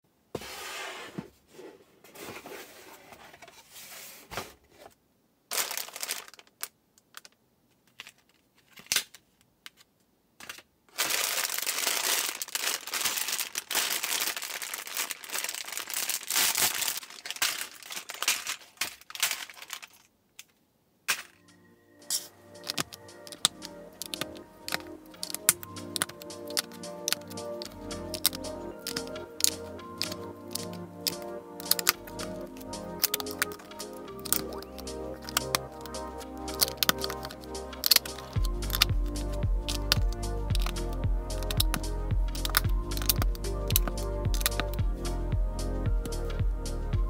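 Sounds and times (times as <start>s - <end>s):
plastic bags crinkling: 5.5s - 7.3s, 10.4s - 20.2s, 22.1s - 38.9s
plastic bricks clicking together: 5.6s - 10.7s, 22.1s - 32.4s, 33.0s - 38.9s, 39.7s - 44.8s
music: 21.4s - 47.0s.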